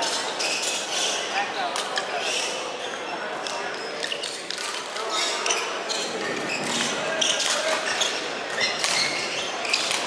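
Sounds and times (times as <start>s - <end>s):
shoes squeaking on court: 2.3s - 10.0s.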